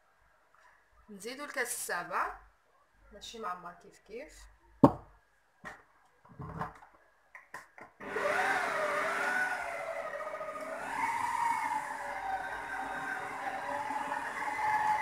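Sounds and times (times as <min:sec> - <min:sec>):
stand mixer motor whine: 0:08.0 - 0:15.0.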